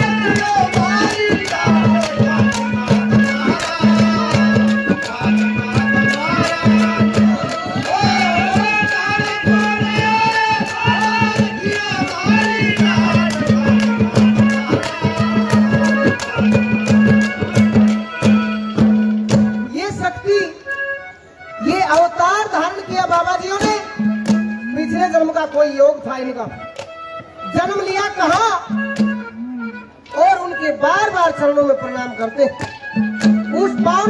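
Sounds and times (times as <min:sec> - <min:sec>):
person singing verses: 0:00.0 - 0:16.6
hand drums fast rhythm: 0:00.0 - 0:19.5.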